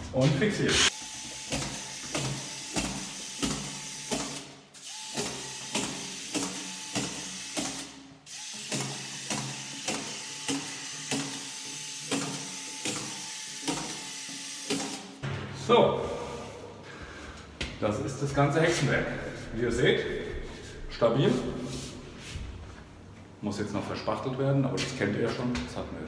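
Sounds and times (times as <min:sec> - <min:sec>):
screw gun driving screws: 0:00.8 - 0:15.1
sharp click of screw gun: 0:05.1 - 0:08.0.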